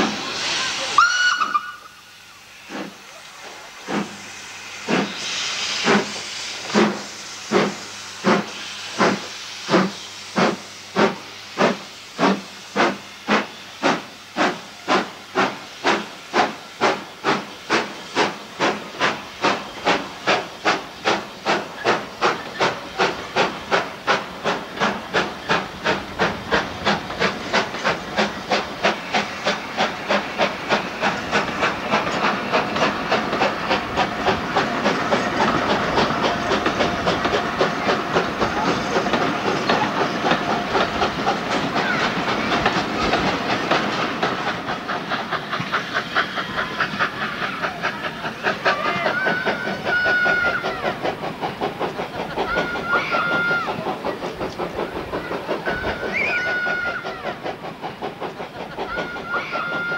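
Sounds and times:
steam locomotive exhaust chuffs: 0:00.0 - 0:59.9
coaches rolling on rails: 0:05.8 - 0:59.9.

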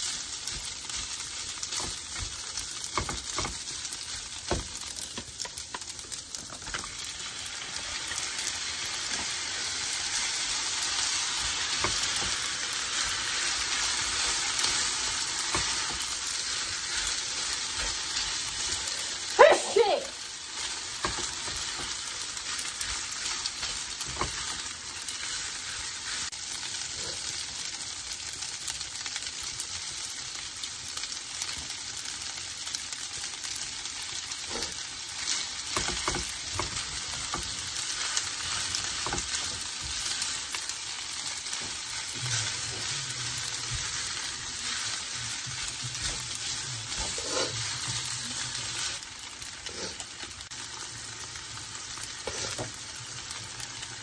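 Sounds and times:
fried rice sizzling in a pan: 0:00.0 - 0:54.0
spatulas scraping and tapping a pan: 0:00.4 - 0:06.9, 0:11.5 - 0:13.2, 0:21.0 - 0:25.4, 0:34.5 - 0:40.4, 0:43.6 - 0:48.1, 0:52.2 - 0:52.8.

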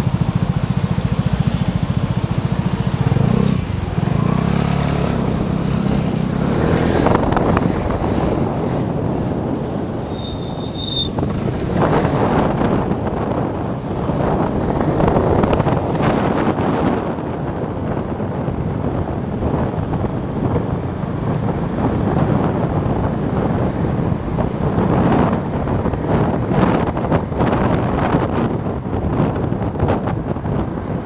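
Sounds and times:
scooter engine running: 0:00.0 - 0:10.4
surrounding traffic: 0:00.0 - 0:31.0
wind rushing over microphone: 0:00.0 - 0:31.0.

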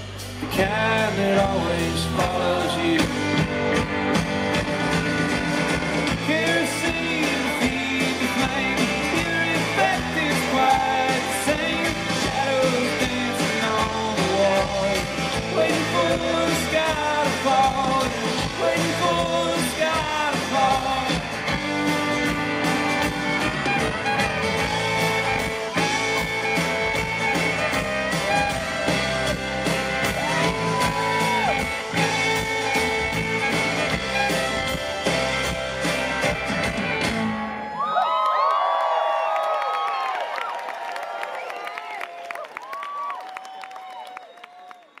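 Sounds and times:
country-rock band playing: 0:00.0 - 0:38.0
man singing lead: 0:00.4 - 0:03.8, 0:06.0 - 0:21.7, 0:23.6 - 0:34.4.

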